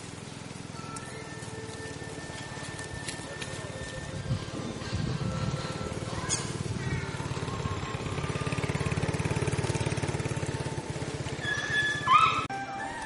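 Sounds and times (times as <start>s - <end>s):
small engine running: 0.0s - 12.5s.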